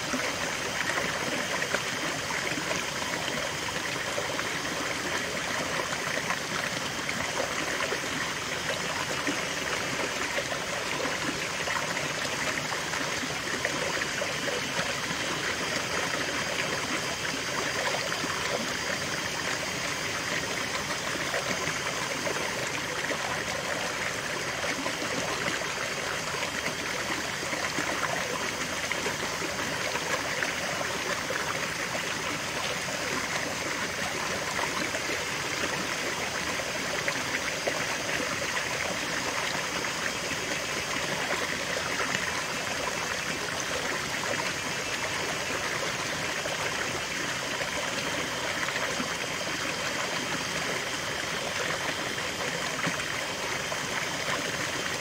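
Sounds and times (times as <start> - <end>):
water splashing over rocks: 0.0 - 55.0.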